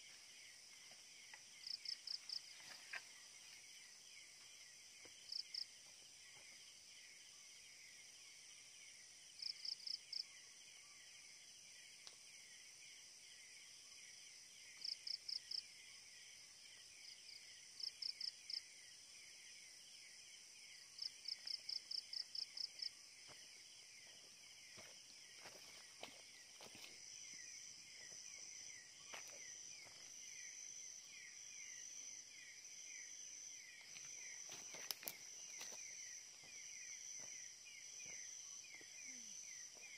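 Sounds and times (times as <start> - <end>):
insects chirring trill: 0.0 - 39.9
thin high insect tone: 17.0 - 39.9.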